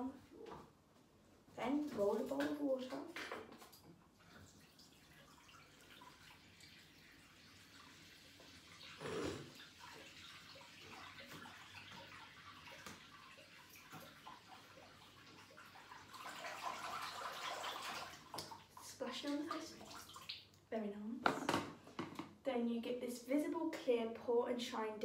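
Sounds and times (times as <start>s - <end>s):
tap water running into sink: 1.8s - 20.6s.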